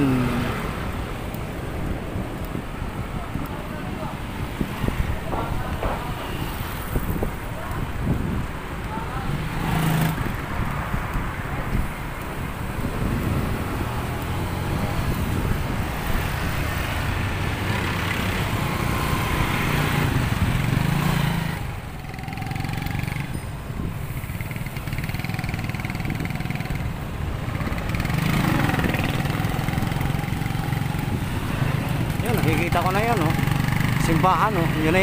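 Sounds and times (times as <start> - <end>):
motorcycle engines in traffic: 0.0 - 35.0.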